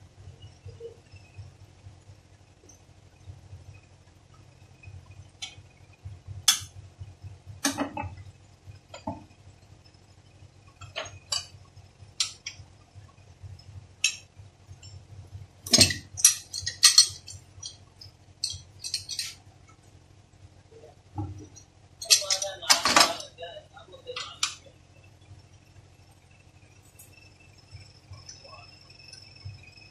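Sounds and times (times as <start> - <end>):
low steady hum: 0.0 - 29.9
metal parts clinking: 10.8 - 11.5, 15.6 - 19.4, 22.0 - 23.3.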